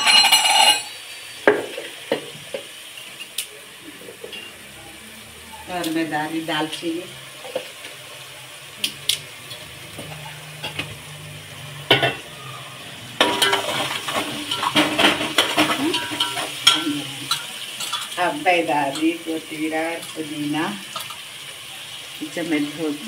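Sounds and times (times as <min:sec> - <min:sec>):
food sizzling in oil: 0:00.0 - 0:23.0
spatula scraping cooking pot: 0:13.2 - 0:18.2.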